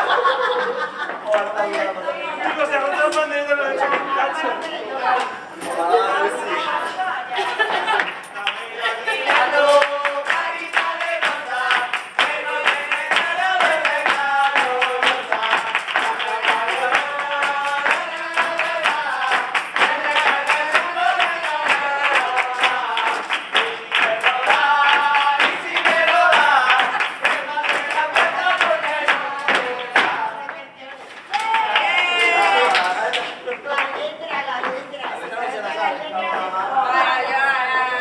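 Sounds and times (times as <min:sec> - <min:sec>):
group singing a carol: 0:03.8 - 0:33.8, 0:35.1 - 0:38.0
sharp rhythmic percussion strikes: 0:07.9 - 0:30.4.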